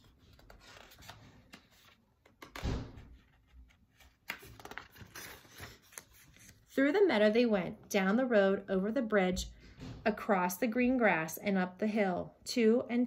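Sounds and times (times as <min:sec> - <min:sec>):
book pages flipping: 0:00.0 - 0:06.8.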